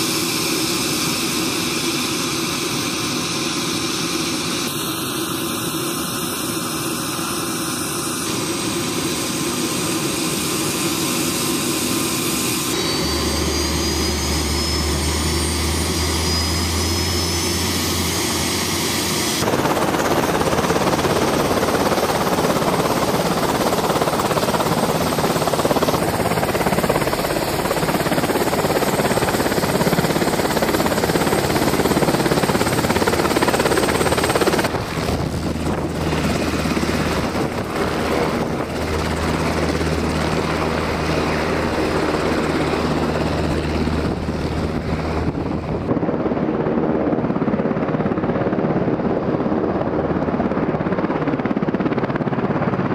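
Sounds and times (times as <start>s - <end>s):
high turbine whine: 0.0s - 52.8s
helicopter rotors turning: 0.0s - 52.9s.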